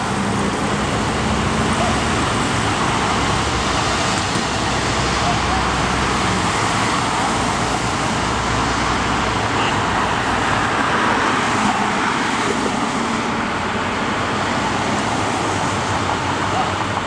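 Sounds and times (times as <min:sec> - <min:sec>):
cars passing: 0:00.0 - 0:17.0.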